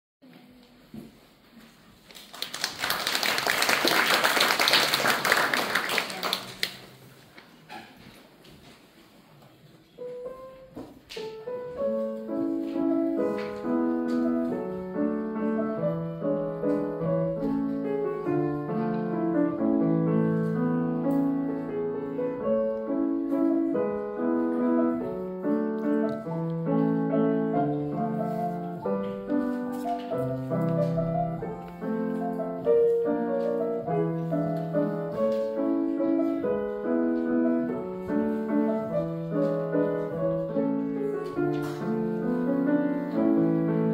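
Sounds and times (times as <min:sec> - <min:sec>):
grand piano playing: 0:10.0 - 0:43.9.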